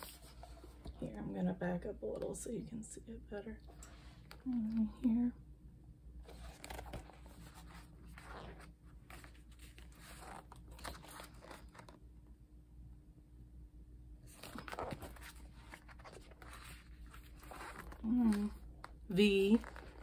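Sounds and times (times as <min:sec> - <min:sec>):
paper pages rustling: 0:00.0 - 0:01.0, 0:06.2 - 0:12.0, 0:14.3 - 0:20.0.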